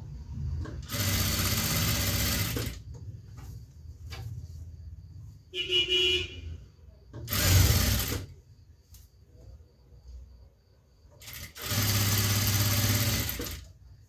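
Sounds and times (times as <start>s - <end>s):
sewing machine stitching: 0.6s - 2.8s, 7.2s - 8.3s, 11.2s - 13.7s.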